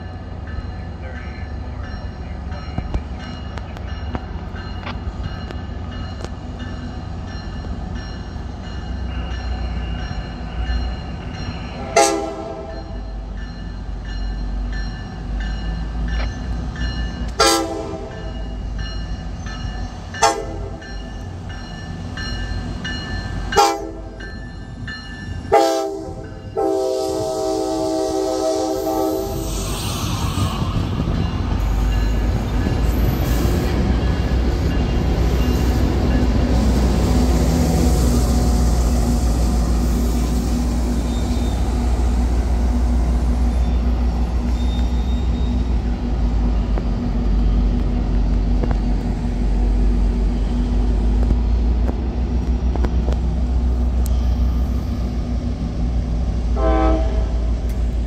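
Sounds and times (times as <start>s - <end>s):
diesel locomotive engine drone: 0.0s - 58.0s
train wheel and rail noise: 0.0s - 58.0s
train horn toot: 11.8s - 13.0s, 17.3s - 18.4s, 20.2s - 20.8s, 23.6s - 24.2s, 25.5s - 29.6s, 56.5s - 57.6s.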